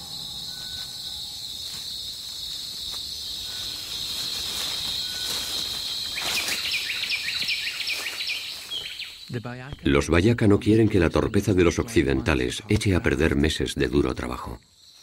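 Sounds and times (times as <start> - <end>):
insects droning high-pitched: 0.0 - 15.0.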